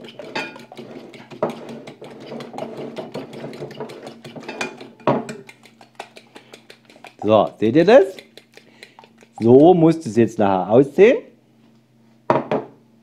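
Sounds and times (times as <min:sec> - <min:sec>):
fork beating eggs in ceramic dish: 0:00.0 - 0:10.4
knock on dish: 0:12.3 - 0:12.7.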